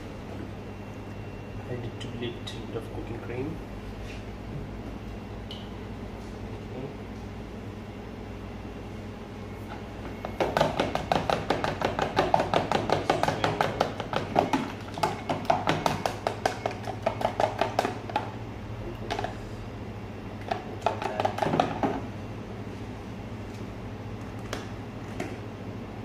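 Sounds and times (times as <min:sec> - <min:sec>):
batter beaten in plastic tub: 0:10.2 - 0:18.4, 0:20.4 - 0:22.0.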